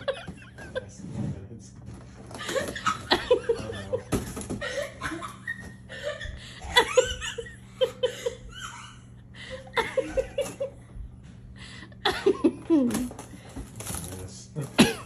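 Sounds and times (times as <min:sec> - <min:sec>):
person chuckling: 0:02.4 - 0:10.8, 0:11.8 - 0:13.2.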